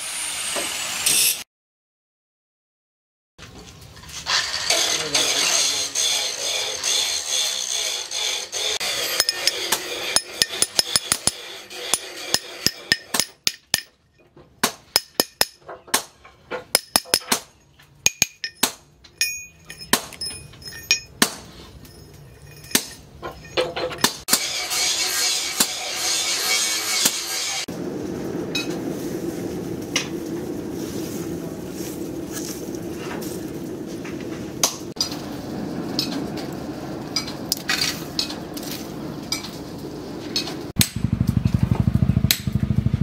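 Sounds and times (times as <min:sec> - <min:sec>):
hammer striking steel on anvil: 0:09.0 - 0:14.0, 0:14.6 - 0:16.1, 0:16.7 - 0:21.5, 0:22.4 - 0:24.5, 0:42.3 - 0:42.6.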